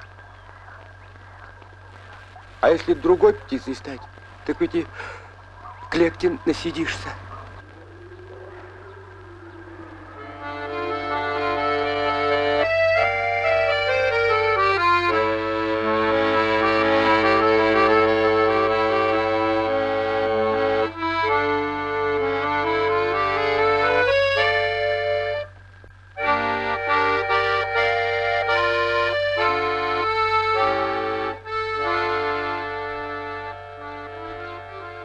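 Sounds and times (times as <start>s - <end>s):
accordion-like instrumental music: 10.2s - 25.6s, 26.2s - 35.0s.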